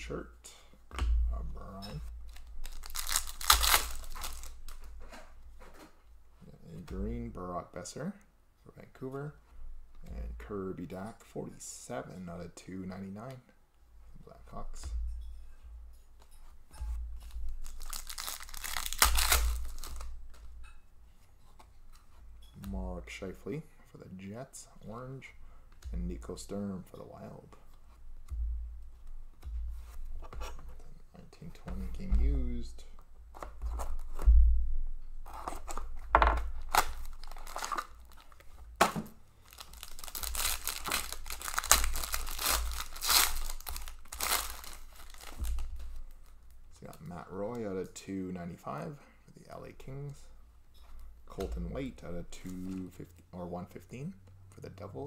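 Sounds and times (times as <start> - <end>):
cards rustling and flicking: 1.6 - 5.9, 17.2 - 20.5, 35.3 - 46.4
foil pack crinkling and tearing: 2.3 - 4.9, 17.2 - 20.2, 36.6 - 38.5, 39.4 - 47.0
knocks and scrapes: 14.6 - 17.9, 27.2 - 34.6, 35.2 - 39.2.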